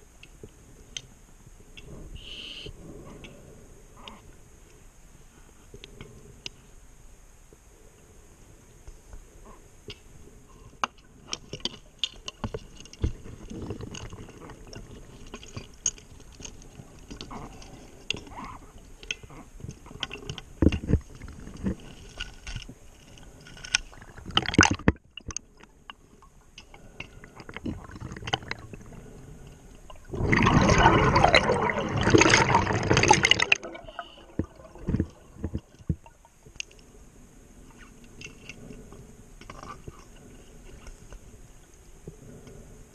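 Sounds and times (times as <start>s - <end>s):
exhaled bubbles rushing: 27.4s - 29.0s, 29.9s - 36.3s.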